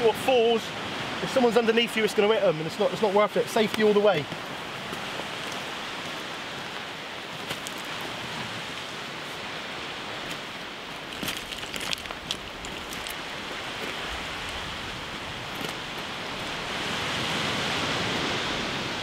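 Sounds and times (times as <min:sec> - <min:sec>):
surf breaking on rocky shore: 0:00.0 - 0:19.0.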